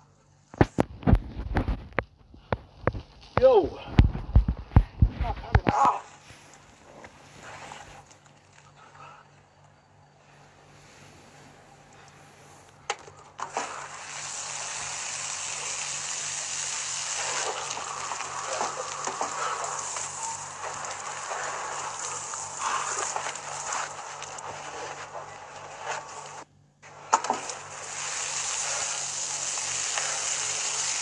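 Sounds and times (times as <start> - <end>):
shower spraying water: 13.4 - 31.0
water splashing: 13.4 - 31.0.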